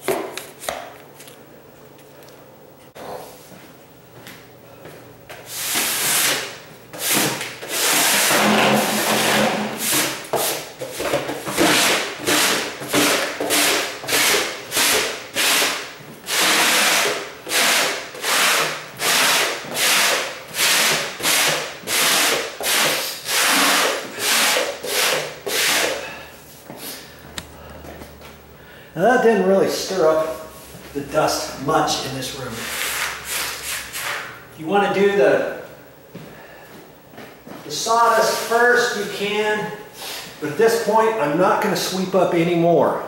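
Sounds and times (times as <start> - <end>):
broom sweeping hard floor: 5.3 - 27.1, 29.7 - 34.4, 40.0 - 40.4.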